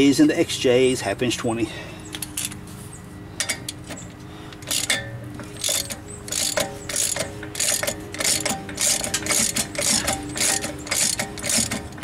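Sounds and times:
socket ratchet clicking: 4.6 - 5.0, 5.6 - 12.0.

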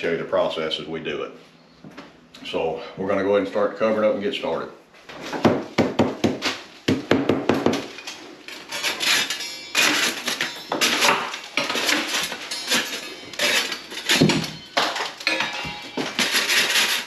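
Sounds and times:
metal scraper scraping ceiling: 7.8 - 17.0
plaster chipped with metal scraper: 8.5 - 17.0.

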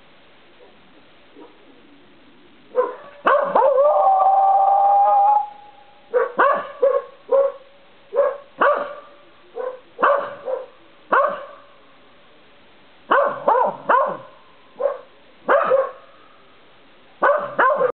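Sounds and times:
dog barking: 1.4 - 1.6, 2.7 - 3.9, 6.1 - 11.6, 13.1 - 16.1, 17.2 - 18.0.

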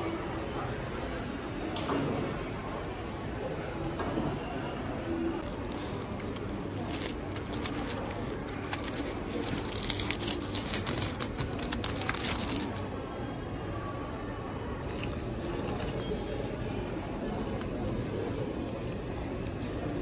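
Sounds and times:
aluminium foil crinkling: 5.4 - 12.8, 14.8 - 17.7.

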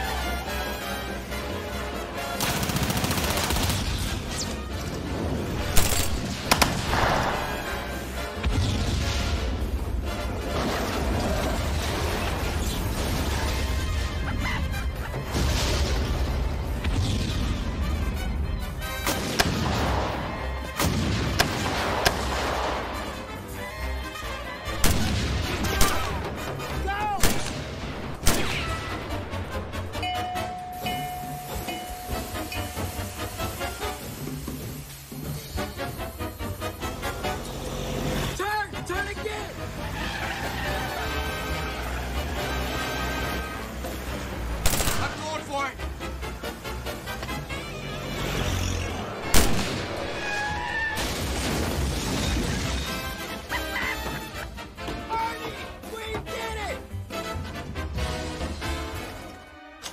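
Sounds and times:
background music: 0.0 - 59.9
automatic gunfire: 2.4 - 3.9, 44.6 - 45.2
gunshots: 2.4 - 4.8, 5.6 - 7.7, 19.0 - 23.1, 24.7 - 29.2, 44.6 - 45.4, 49.2 - 53.4
single gunshots: 27.2 - 28.8, 44.6 - 45.2, 49.3 - 50.1.

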